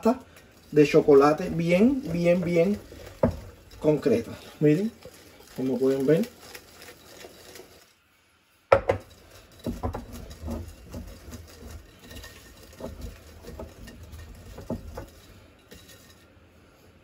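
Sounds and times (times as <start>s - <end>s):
spatula knocking and scraping bowl: 0.5s - 5.2s, 8.7s - 16.2s.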